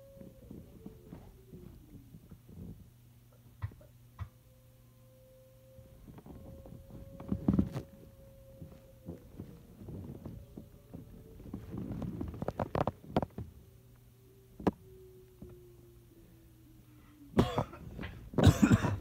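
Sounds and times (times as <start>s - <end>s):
quiet rustling: 5.8s - 13.7s
person coughing: 17.4s - 19.0s.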